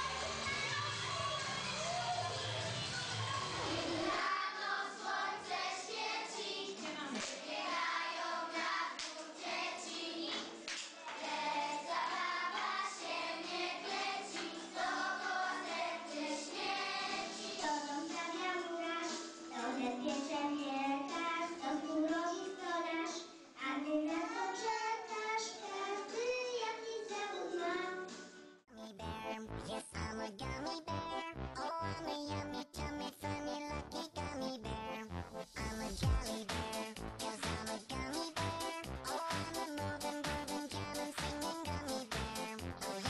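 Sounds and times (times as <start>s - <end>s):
high child-like singing: 2.8s - 28.2s, 35.7s - 43.0s
music with steady beat: 35.1s - 43.0s.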